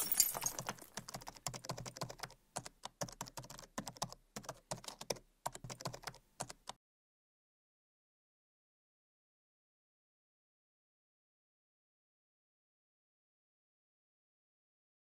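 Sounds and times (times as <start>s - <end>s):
keyboard typing clicks: 0.5s - 6.8s.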